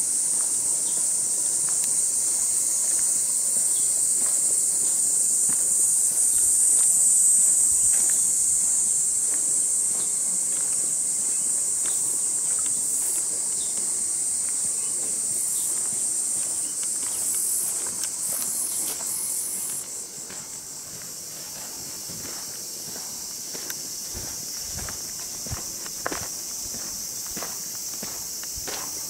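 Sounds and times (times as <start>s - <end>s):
insects shrilling: 0.0s - 29.0s.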